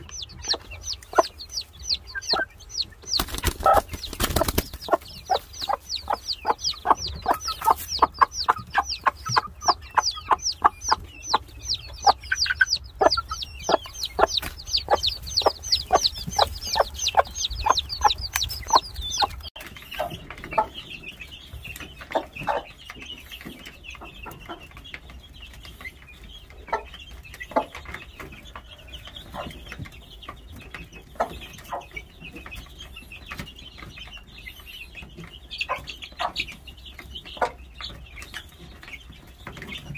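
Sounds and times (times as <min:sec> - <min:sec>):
chickens peeping: 0:00.0 - 0:39.9.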